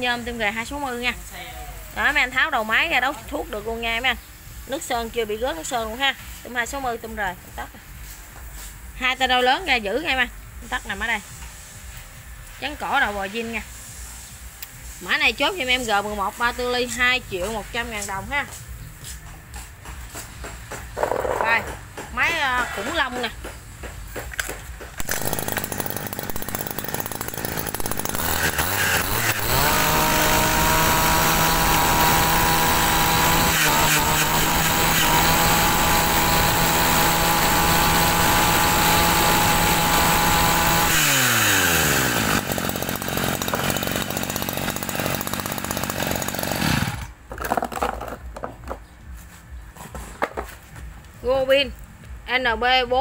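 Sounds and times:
brush-cutter engine revving: 0:25.0 - 0:47.2.

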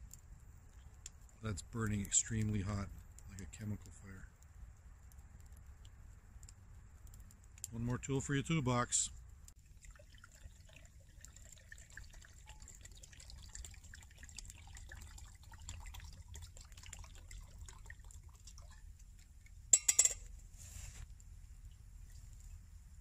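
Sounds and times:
liquid trickling into metal cup: 0:09.6 - 0:20.2.

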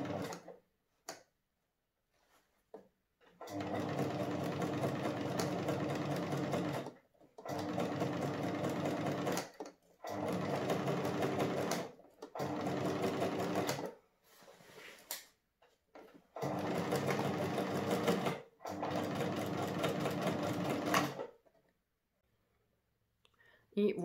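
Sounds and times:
sewing machine stitching: 0:00.0 - 0:00.6, 0:03.4 - 0:14.0, 0:16.3 - 0:21.4.

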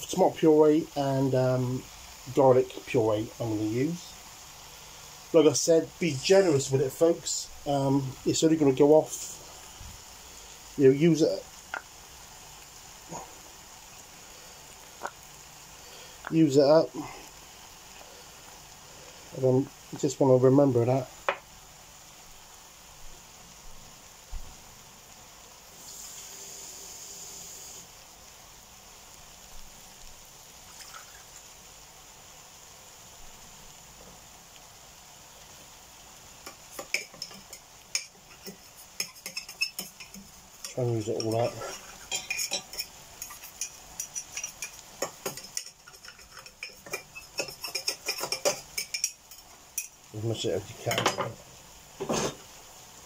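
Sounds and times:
water running: 0:05.3 - 0:21.3, 0:30.6 - 0:31.6, 0:36.4 - 0:52.5.

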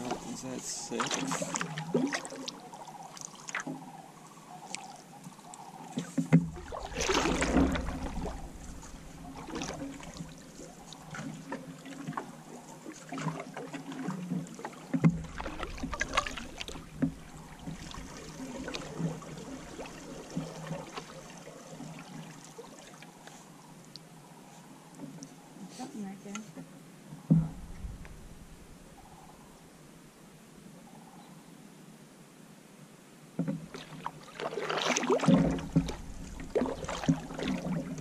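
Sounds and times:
paddle knocking against canoe: 0:00.0 - 0:02.3, 0:05.9 - 0:22.2, 0:27.2 - 0:29.4, 0:33.4 - 0:38.0
paddle strokes swishing in water: 0:00.0 - 0:23.8, 0:33.4 - 0:38.0.

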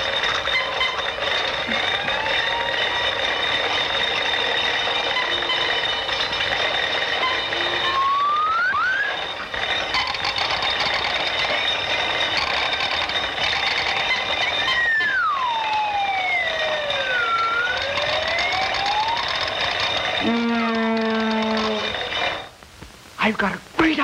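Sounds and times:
mechanical rattling and clattering: 0:00.0 - 0:22.6
steady high whine: 0:00.0 - 0:24.0
whistle-like rising glides: 0:01.7 - 0:03.5, 0:07.1 - 0:09.4, 0:14.6 - 0:21.9.

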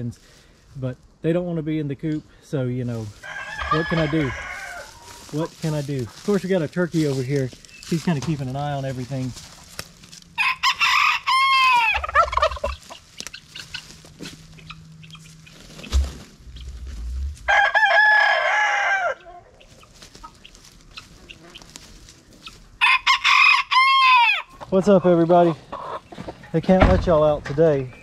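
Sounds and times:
roosters crowing: 0:03.1 - 0:05.8, 0:09.6 - 0:24.6.

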